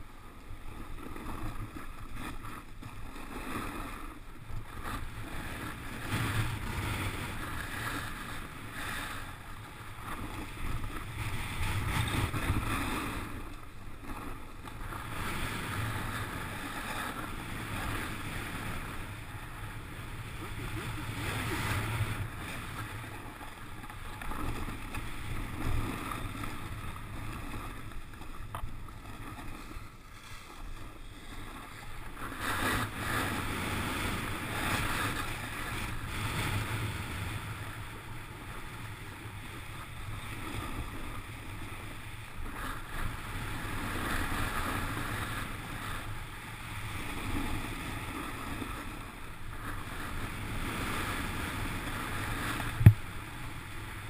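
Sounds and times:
wind on microphone: 42.5 - 54.0.

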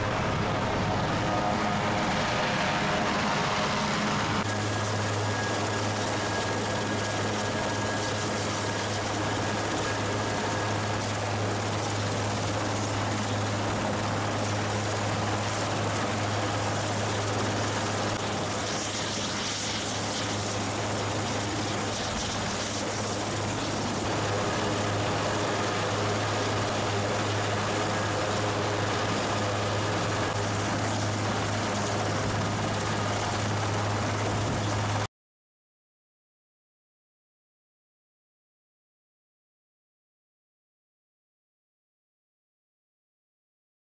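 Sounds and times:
helicopter rotor drone: 0.0 - 35.1.

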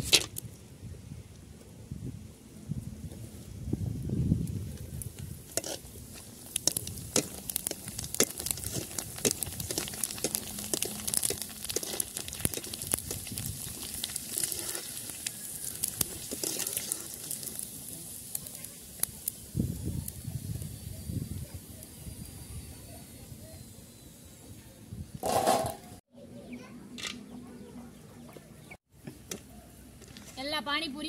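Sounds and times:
deep-frying sizzle with pops: 3.1 - 23.3.

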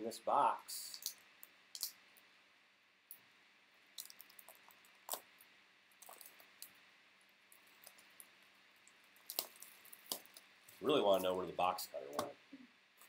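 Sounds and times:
plastic wrap rustling: 7.5 - 11.7.

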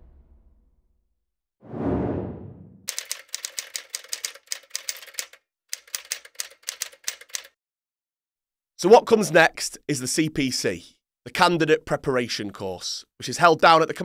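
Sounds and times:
whoosh sound effect: 1.6 - 2.8
typewriter key clicks: 2.9 - 7.5.

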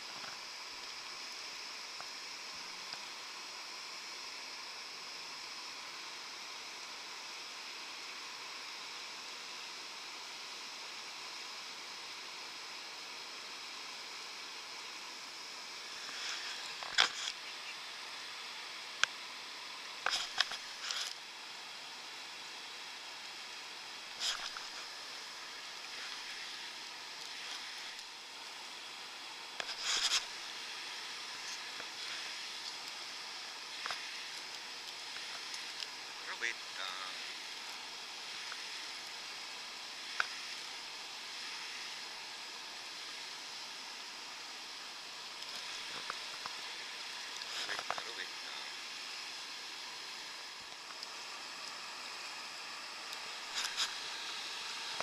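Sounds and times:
river water rushing over rapids: 17.8 - 55.0.

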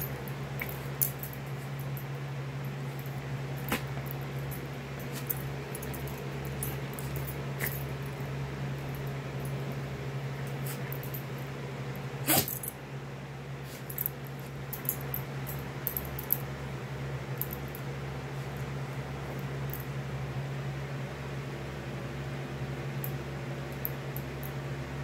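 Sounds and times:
collar tags jingling: 0.0 - 9.8
steady low hum: 0.0 - 25.0.

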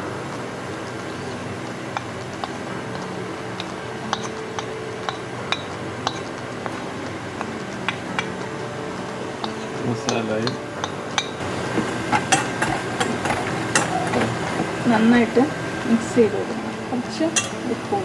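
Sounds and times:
metal spoon clinking on saucer: 4.1 - 6.3, 17.4 - 17.6.

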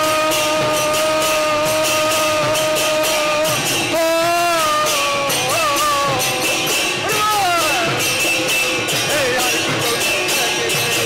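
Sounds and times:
held melody note: 0.0 - 10.9
drums keeping brisk beat: 0.0 - 11.0.

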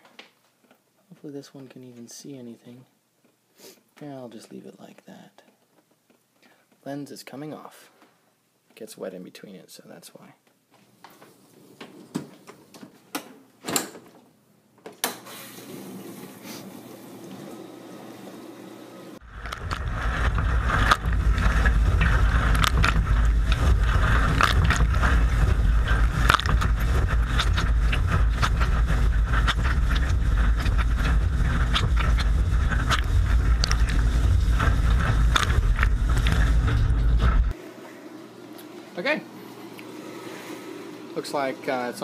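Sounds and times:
dishwasher water jets spraying: 15.2 - 37.6, 38.2 - 42.0
dishwasher running muffled: 15.5 - 42.0.

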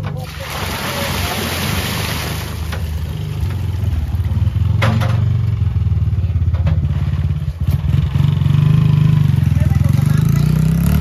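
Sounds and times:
motorbike engine idling: 3.3 - 10.2
short knocks and clatters: 4.7 - 5.4.

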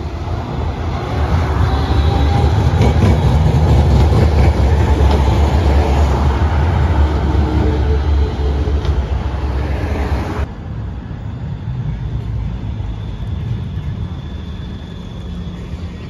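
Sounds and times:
car and tram passing: 0.0 - 16.0
street noise: 0.0 - 16.0
tram approaching: 0.0 - 16.0.

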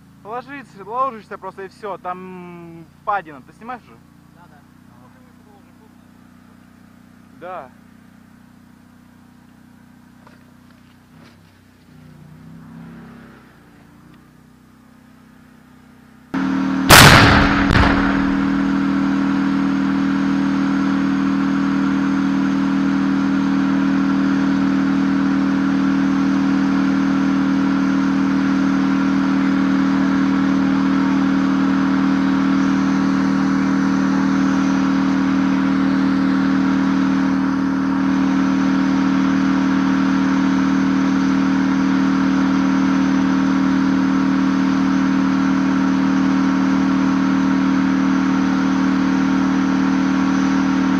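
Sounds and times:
tank engine humming: 0.0 - 50.9
tank cannon shot: 16.9 - 18.9.

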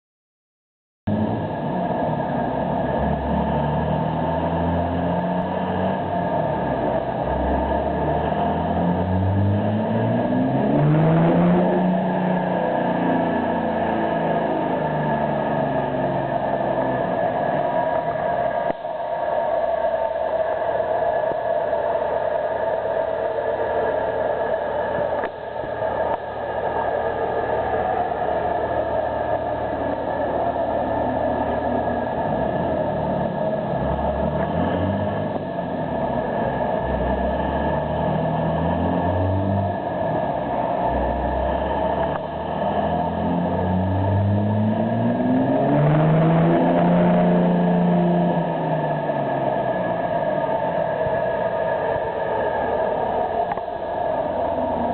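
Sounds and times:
diesel engine droning under load: 1.1 - 54.9.

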